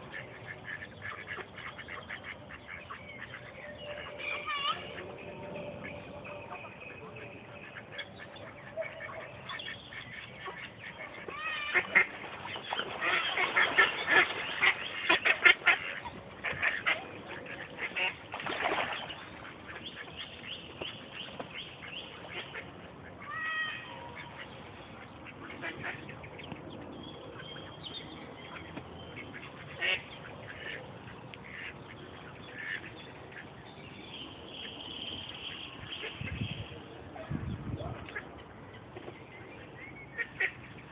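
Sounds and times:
ducks quacking: 0.0 - 26.6, 28.4 - 33.6, 40.1 - 40.9.

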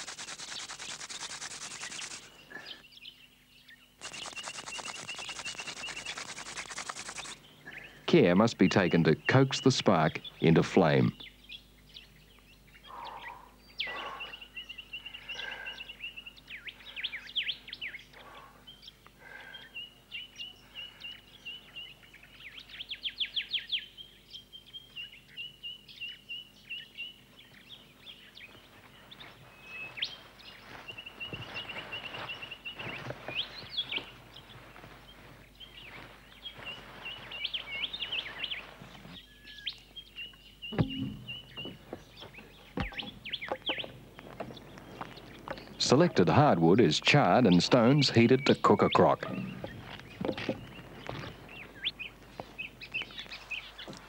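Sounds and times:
rushing hiss: 0.0 - 2.3, 4.0 - 7.4
bird fast trill: 0.0 - 2.4, 4.0 - 7.4, 40.7 - 41.7
quick bird chirps: 0.0 - 2.8, 4.0 - 8.0, 40.7 - 45.8.

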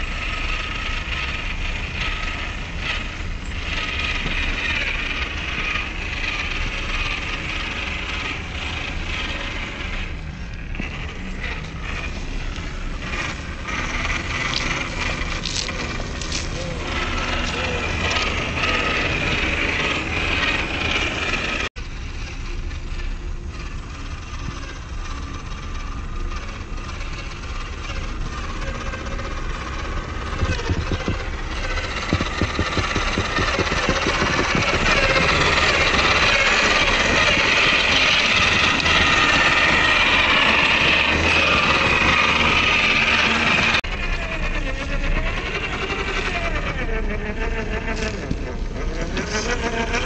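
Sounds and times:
electric motor whining: 0.0 - 50.0
fast ticking: 23.8 - 43.8.

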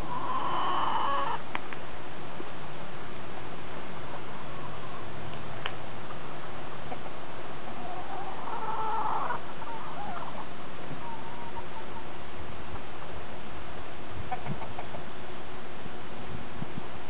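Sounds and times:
rooster crowing: 0.0 - 1.4.

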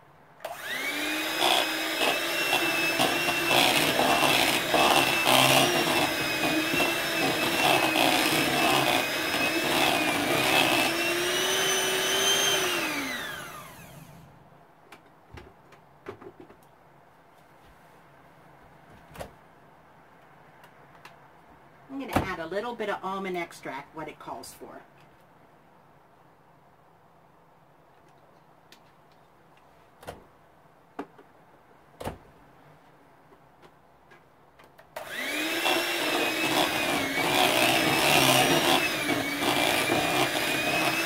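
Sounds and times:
electric mixer whining: 0.4 - 14.2, 35.0 - 41.0.

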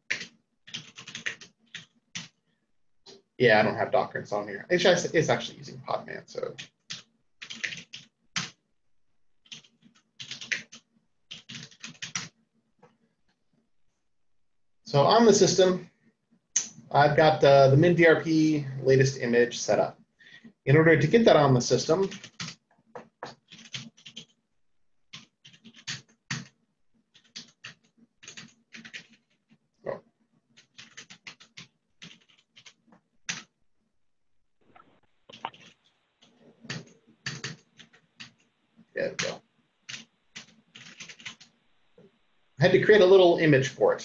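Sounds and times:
computer keyboard typing: 0.0 - 2.4, 6.4 - 8.6, 9.4 - 12.4, 21.9 - 24.4, 25.1 - 29.6, 30.5 - 33.6, 35.2 - 41.6.

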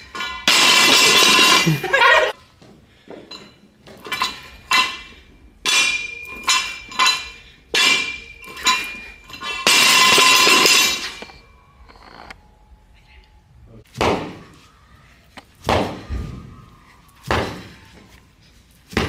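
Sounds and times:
barbell and weight plates clanking: 3.2 - 11.4.

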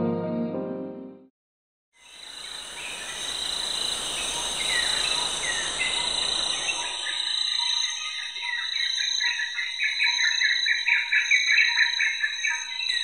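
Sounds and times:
piano music: 0.0 - 1.3
short insect chirps: 2.0 - 8.2
high-pitched insect chorus: 2.0 - 13.0.

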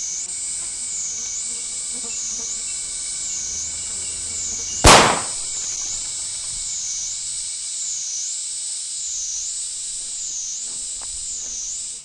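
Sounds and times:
high insect buzz: 0.0 - 12.0
handgun shot: 4.8 - 5.5.

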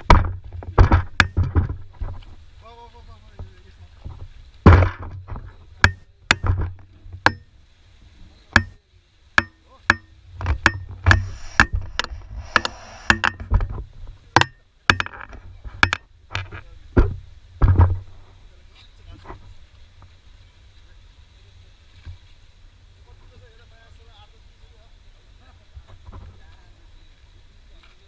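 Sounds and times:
sharp irregular clicks and knocks: 0.0 - 2.2, 9.4 - 13.8, 14.4 - 18.0
short hiss: 10.9 - 13.8.

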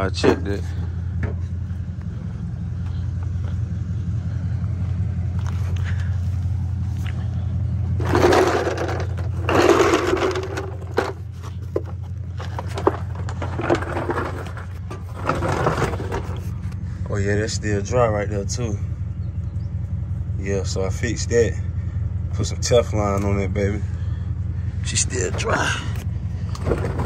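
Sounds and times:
vehicle engine idling: 0.0 - 27.0
rustling and scraping: 5.3 - 17.1, 25.2 - 27.0.

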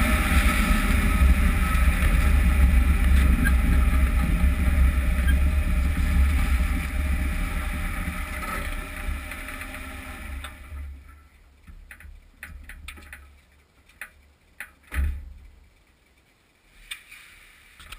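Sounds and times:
tyre and drivetrain rumble: 0.0 - 16.3
thump: 14.9 - 15.3.

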